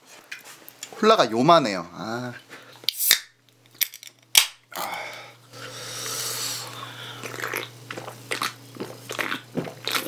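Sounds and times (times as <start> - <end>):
can cracking open: 2.9 - 4.6
person gulping: 7.1 - 10.0.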